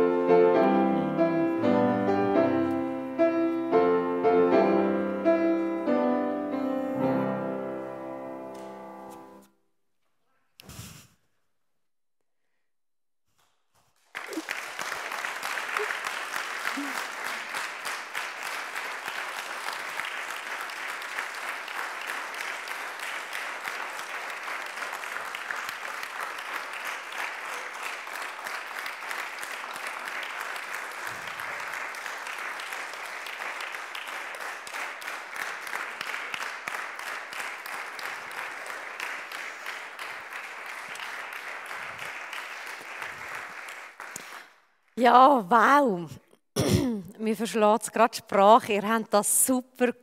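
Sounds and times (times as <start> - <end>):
audience applauding: 14.0 - 44.7.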